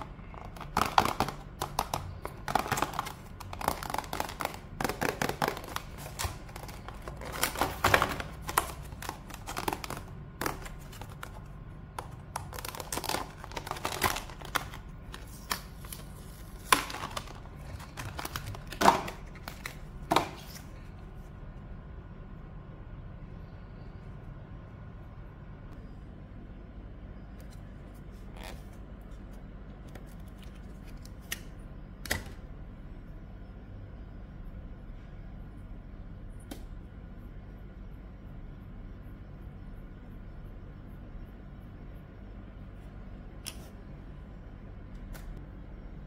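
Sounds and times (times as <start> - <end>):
plastic packaging crinkling: 0.0 - 20.6.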